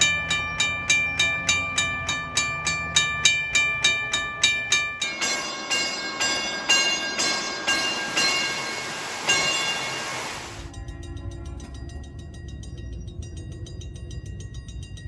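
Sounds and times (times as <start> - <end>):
motor-driven gong bell striking: 0.0 - 12.4
railroad crossing bell ringing: 0.0 - 15.0.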